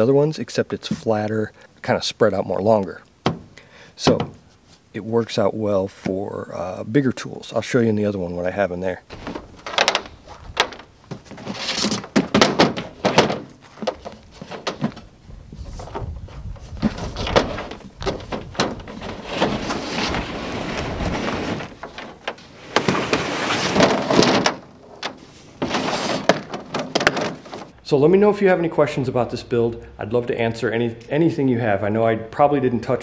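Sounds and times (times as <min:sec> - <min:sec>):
plastic tub knocking and clunking: 0:03.2 - 0:04.4, 0:09.1 - 0:15.1, 0:25.6 - 0:27.7
plastic tub scraping over bed liner: 0:09.1 - 0:15.0, 0:15.6 - 0:24.6, 0:25.2 - 0:27.7.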